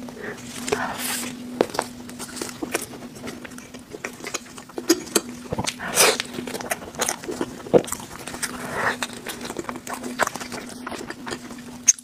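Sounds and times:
faint steady hum: 0.0 - 12.0
wet chewing: 0.0 - 12.0.

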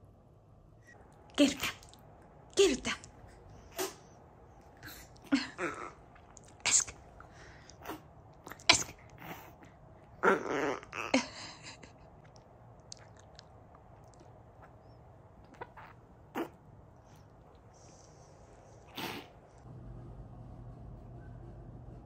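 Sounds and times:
dog snorting and sneezing: 3.5 - 4.2, 7.7 - 9.6, 15.6 - 17.2, 18.8 - 19.5.

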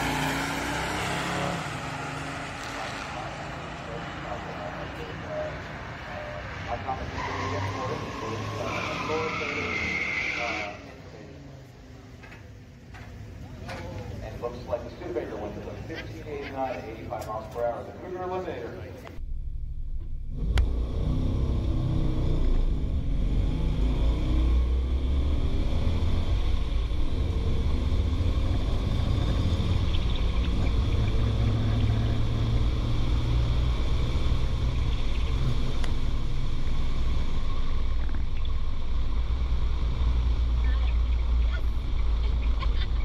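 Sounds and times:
car engine accelerating hard: 0.0 - 10.8, 20.0 - 43.0.

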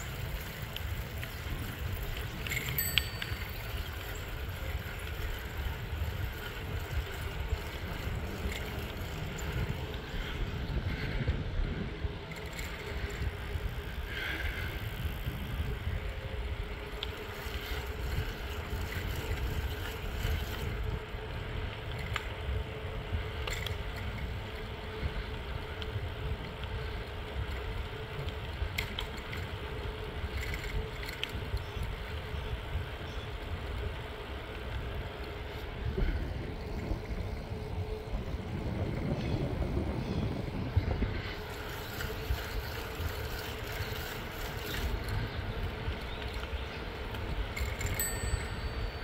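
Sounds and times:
tires humming on asphalt: 0.0 - 49.0
wind rumbling on microphone: 0.0 - 49.0.

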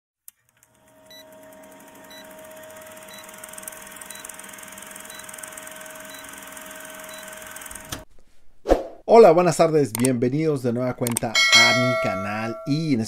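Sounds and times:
film projector clatter: 0.3 - 8.0.

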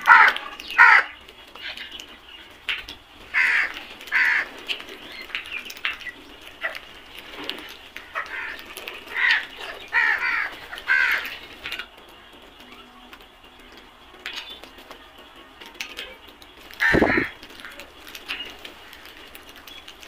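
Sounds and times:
crows cawing: 0.0 - 1.2, 3.3 - 4.5, 8.0 - 11.4, 16.8 - 17.7.

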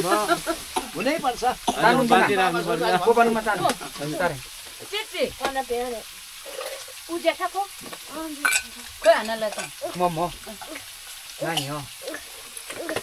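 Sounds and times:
people talking: 0.0 - 6.0, 7.1 - 10.8, 11.4 - 11.9
food sizzling in a pan: 0.0 - 13.0.

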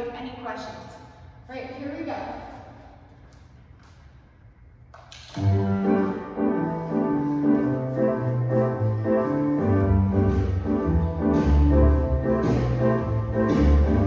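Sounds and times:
instrumental music: 5.4 - 14.0.

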